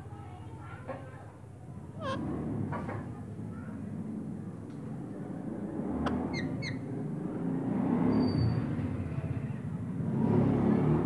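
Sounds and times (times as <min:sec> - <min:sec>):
parakeet chirps: 0:06.1 - 0:06.8.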